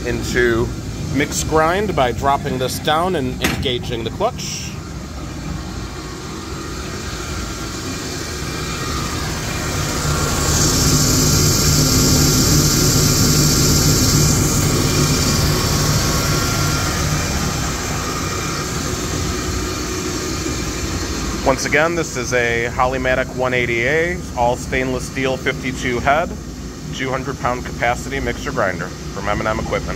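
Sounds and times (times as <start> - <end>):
mixer grinder machine hum: 0.0 - 29.9
machine hiss: 5.8 - 23.2.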